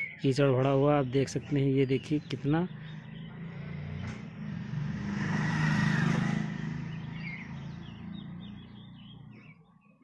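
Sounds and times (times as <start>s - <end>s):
passing vehicle engine: 2.0s - 9.7s.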